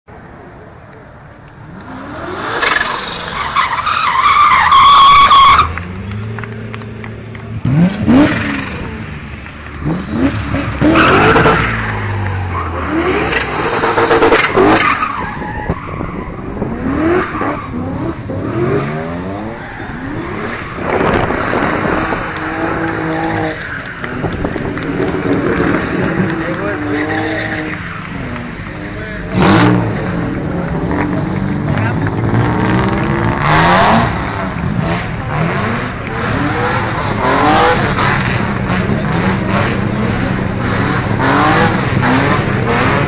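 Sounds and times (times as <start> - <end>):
rally car engines revving: 1.5 - 43.0
tyres squealing: 2.7 - 7.4, 31.4 - 38.1.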